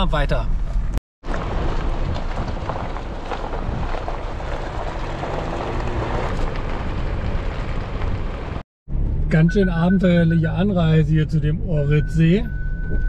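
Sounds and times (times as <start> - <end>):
vehicle driving on gravel: 1.2 - 9.4
wind on microphone: 1.5 - 8.6.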